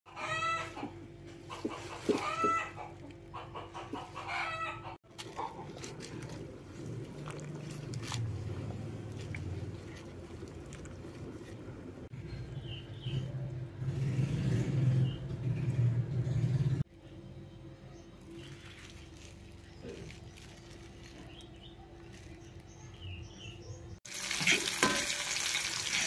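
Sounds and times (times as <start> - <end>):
chicken calling: 0.1 - 5.7.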